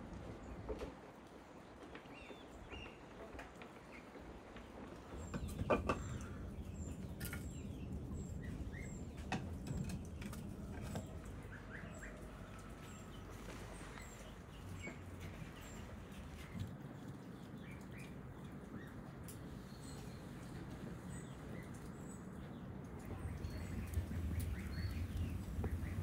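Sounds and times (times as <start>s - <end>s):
low outdoor hum: 0.0s - 26.0s
small birds chirping: 1.5s - 26.0s.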